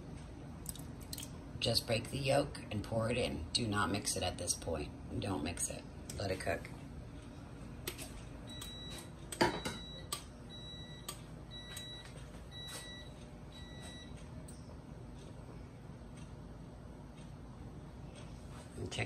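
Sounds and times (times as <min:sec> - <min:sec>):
appliance timer beeping: 0:07.8 - 0:19.0.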